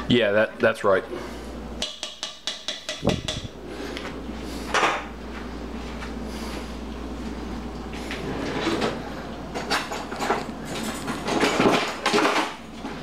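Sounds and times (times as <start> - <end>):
steady low hum: 0.0 - 13.0
jars and cookware knocking: 1.8 - 3.5.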